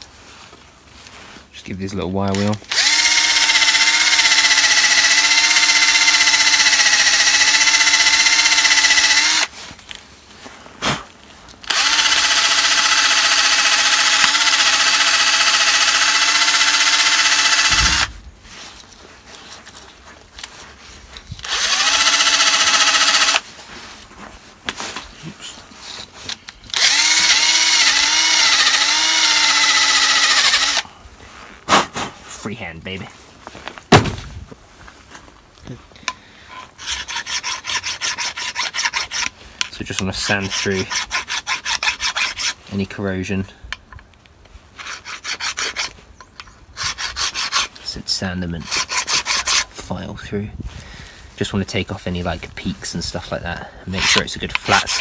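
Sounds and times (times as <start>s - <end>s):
drill with wire brush scrubbing rust: 2.3s - 9.5s, 11.6s - 18.2s, 21.4s - 23.5s, 26.7s - 30.8s, 36.8s - 42.6s, 44.8s - 46.0s, 46.8s - 49.9s, 53.9s - 55.0s.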